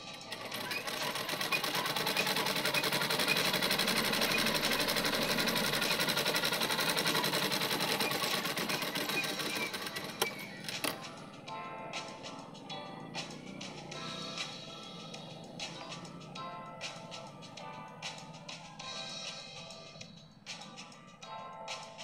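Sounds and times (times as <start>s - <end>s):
sewing machine running: 0.0s - 11.0s
sewing machine clicks: 0.2s - 11.0s.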